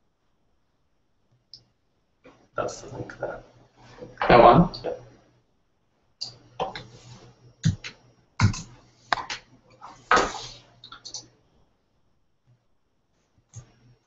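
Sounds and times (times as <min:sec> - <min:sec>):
keyboard typing: 0:10.8 - 0:11.3.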